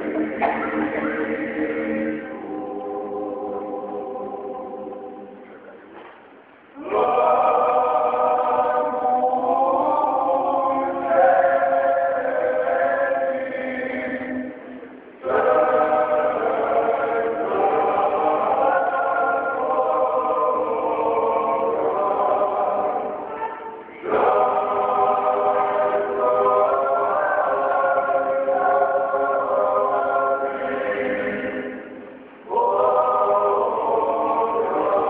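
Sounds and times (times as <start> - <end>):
male choir singing in harmony: 0.0 - 5.8, 6.7 - 35.0.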